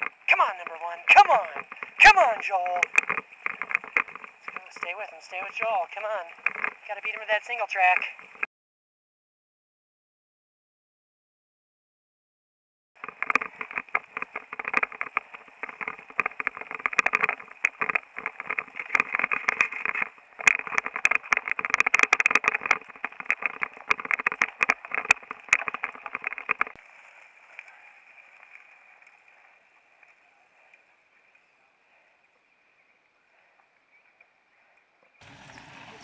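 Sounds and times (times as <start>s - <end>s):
camera rattling: 0.0s - 8.5s, 13.0s - 26.8s, 35.2s - 36.0s.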